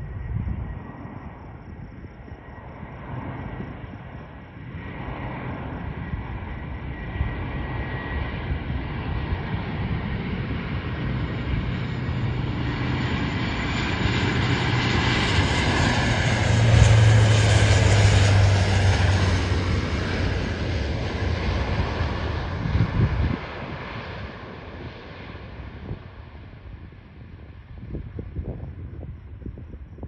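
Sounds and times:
propeller aircraft passing overhead: 0.0s - 29.8s.

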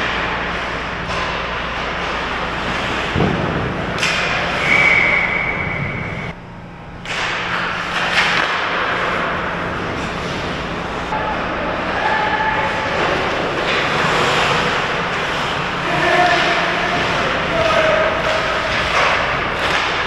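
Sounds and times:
sharp knocks of sticks and puck: 3.1s - 5.4s, 7.0s - 9.3s, 15.9s - 20.0s
skates on ice: 11.7s - 20.0s.

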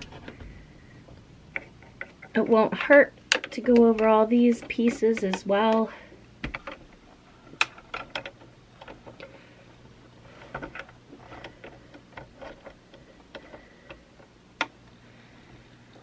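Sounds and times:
small metal and plastic parts clicking: 1.5s - 9.4s, 10.3s - 14.8s.

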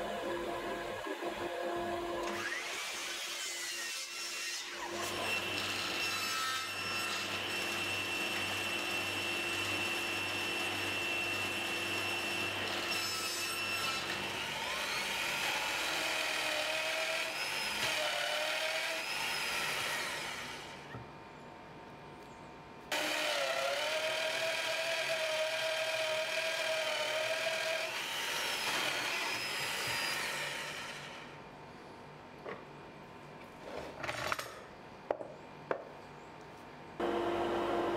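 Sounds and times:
table saw whining: 0.0s - 20.9s, 22.9s - 31.4s, 37.0s - 37.9s
mitre saw cutting: 2.2s - 20.9s, 22.9s - 31.4s.

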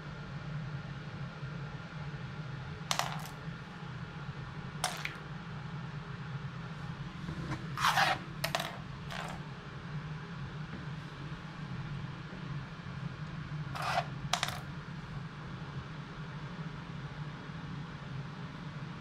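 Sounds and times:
plastic toys clattering in case: 2.9s - 3.4s, 4.8s - 5.2s, 7.8s - 9.4s, 13.8s - 14.7s.

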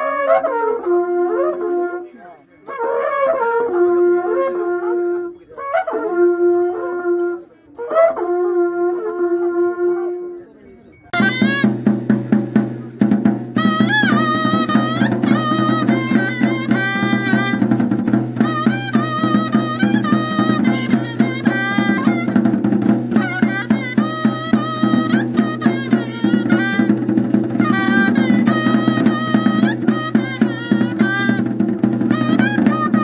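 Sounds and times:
wind pipe wavering high melody: 0.0s - 12.2s, 13.4s - 33.0s
wooden bass drum beats: 11.1s - 33.0s
horn trumpets blowing long notes: 13.5s - 33.0s.

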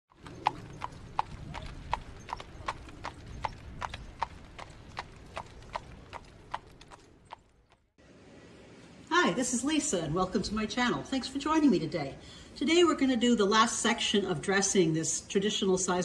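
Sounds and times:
horse hooves clip-clopping: 0.1s - 7.9s.

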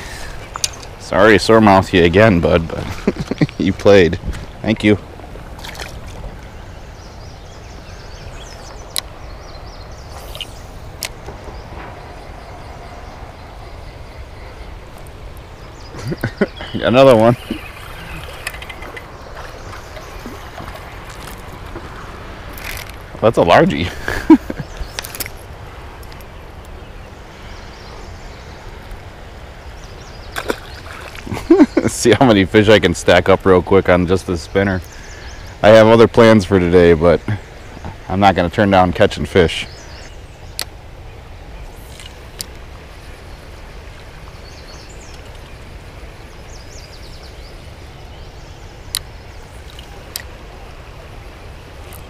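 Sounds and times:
low outdoor rumble: 0.0s - 34.8s
river current rushing: 0.0s - 52.0s
fish splashing in water: 30.3s - 31.4s.

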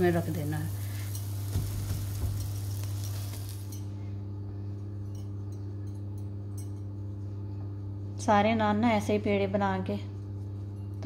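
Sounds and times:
dough sizzling on hot pan: 0.0s - 3.8s
steady low hum: 0.0s - 11.0s.

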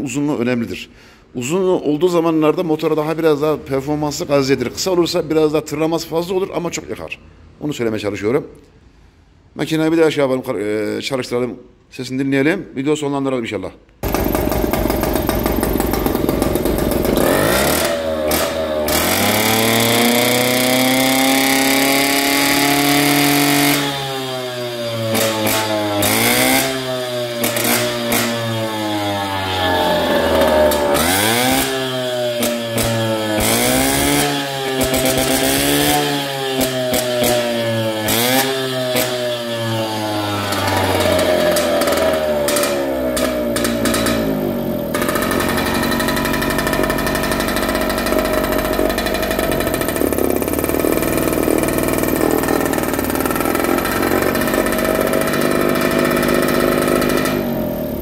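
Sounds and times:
moped engine revving: 14.0s - 58.0s.

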